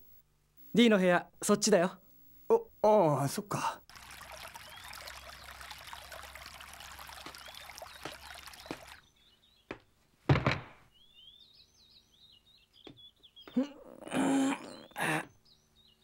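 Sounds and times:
water splashing into stone basin: 3.9 - 9.0
birds chirping: 4.0 - 16.0
suitcase thump: 10.3 - 10.8.

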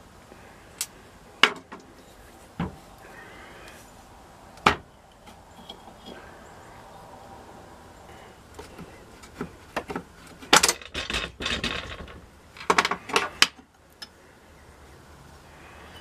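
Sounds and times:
metal-on-metal clatter: 9.8 - 13.5.

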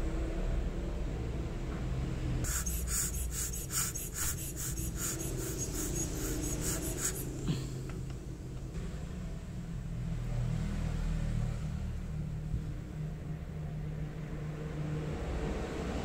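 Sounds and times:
steel tools scratching watch parts: 2.5 - 7.4.

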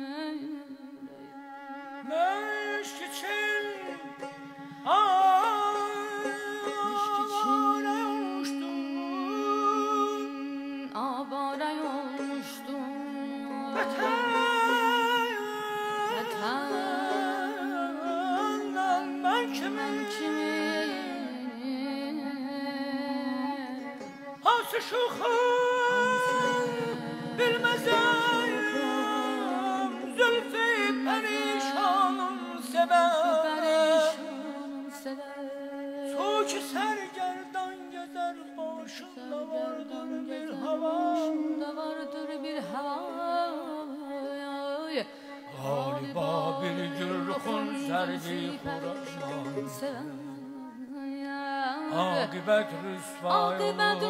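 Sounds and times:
man singing with trilled ornaments: 0.0 - 44.7, 45.5 - 54.0.

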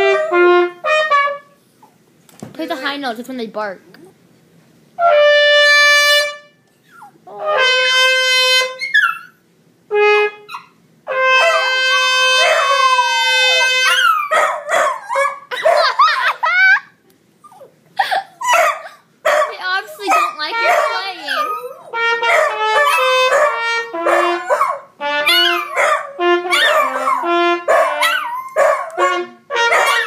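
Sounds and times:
trumpet held notes: 0.0 - 1.7, 5.0 - 6.6, 7.3 - 9.0, 9.9 - 14.4, 19.8 - 30.0
dogs howling and yipping: 12.3 - 16.1, 18.4 - 22.0, 24.2 - 29.0.

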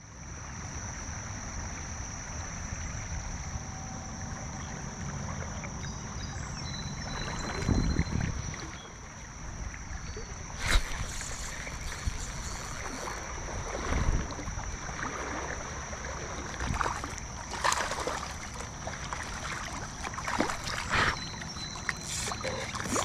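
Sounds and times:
steady hiss: 10.5 - 13.5, 20.8 - 23.0
fish splashing at water surface: 10.6 - 15.6, 16.6 - 23.0.

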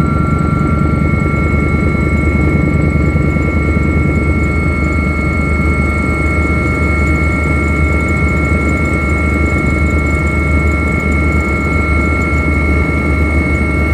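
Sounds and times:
high whine: 0.0 - 8.0
helicopter rotor and engine drone: 0.0 - 13.9.

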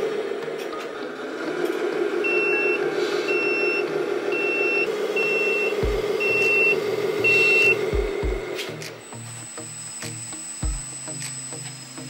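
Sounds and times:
model truck running hum: 0.0 - 12.0
high reversing beeps: 2.2 - 11.0.

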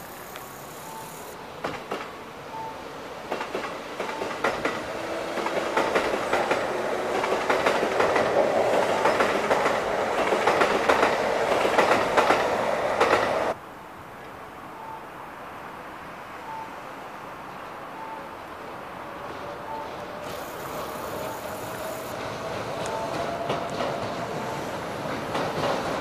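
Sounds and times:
steady train hum: 0.0 - 26.0
train wheels clacking over rail joints: 1.6 - 2.2, 3.3 - 13.6, 19.9 - 26.0.

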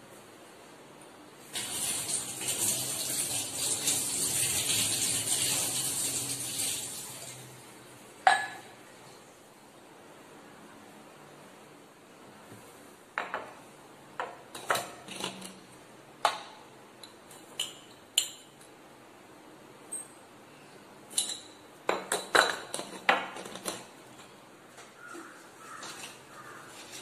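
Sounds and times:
glass jar and lid clinking: 8.3 - 8.7.

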